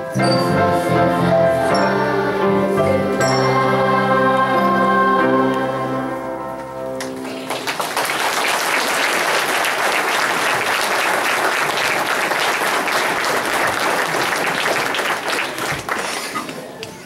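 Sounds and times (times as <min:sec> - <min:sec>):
held music chord: 0:00.0 - 0:07.5
audience applauding: 0:07.0 - 0:16.8.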